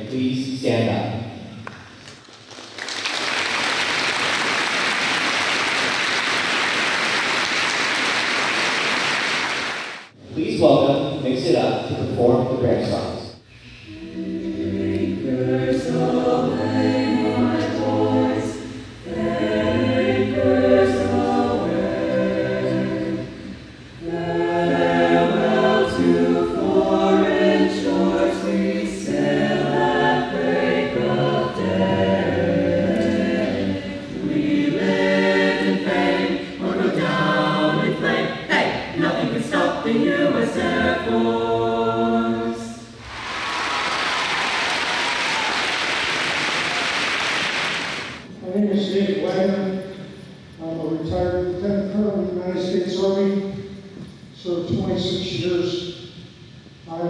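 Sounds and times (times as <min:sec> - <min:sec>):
vocal ensemble singing a cappella: 0:12.8 - 0:45.5.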